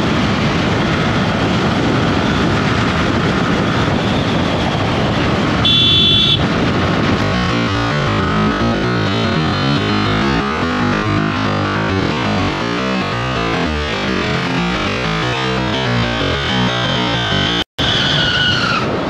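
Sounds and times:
loud background music: 7.2s - 17.6s.

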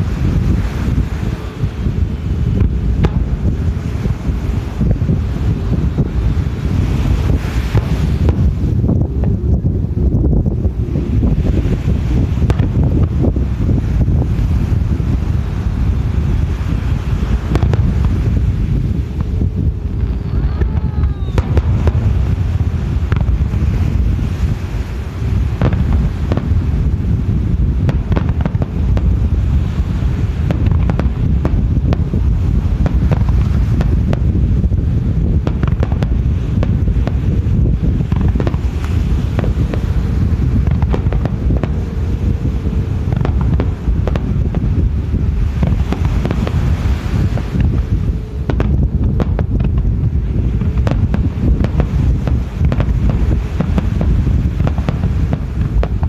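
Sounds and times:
fireworks bangs and crackles: 0.0s - 56.0s
wind rumbling on microphone: 0.0s - 56.0s
firework shells bursting: 35.2s - 56.0s.

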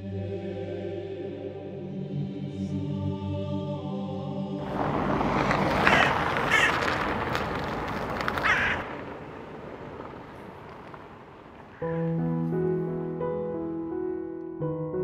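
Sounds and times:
rushing outdoor noise: 4.6s - 12.0s
crow cawing: 4.7s - 12.0s.

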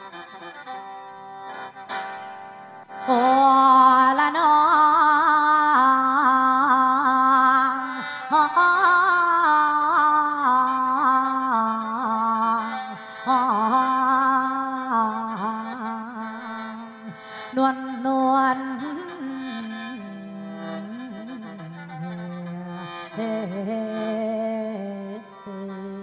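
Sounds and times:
bamboo mouth organ melody: 20.4s - 26.0s.

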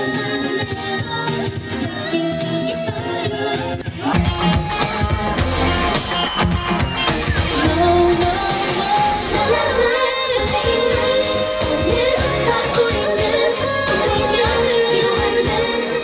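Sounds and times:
girl group singing live: 0.0s - 4.5s, 7.6s - 16.0s
pop backing track: 0.0s - 16.0s.

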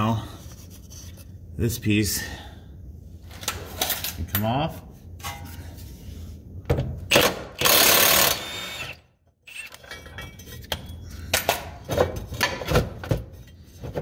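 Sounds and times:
cordless power wrench: 7.1s - 9.8s.

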